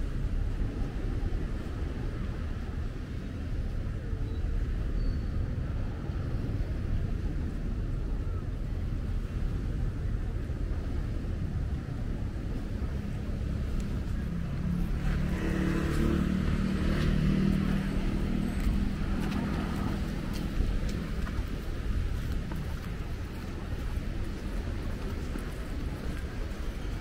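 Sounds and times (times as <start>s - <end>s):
low rumble of street noise: 0.0s - 27.0s
vehicle engine passing by: 14.2s - 20.3s.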